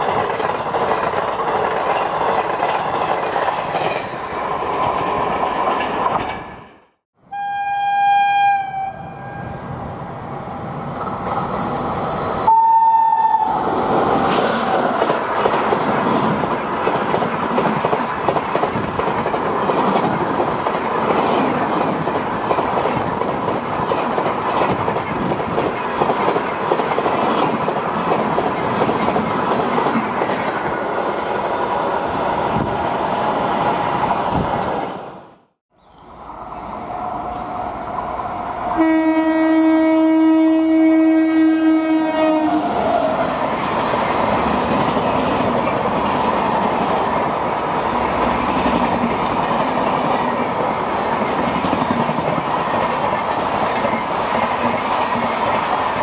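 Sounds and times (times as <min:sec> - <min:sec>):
train horn blast: 0:07.2 - 0:09.6, 0:12.5 - 0:13.6, 0:38.8 - 0:42.7
train rushing past: 0:08.6 - 0:56.0.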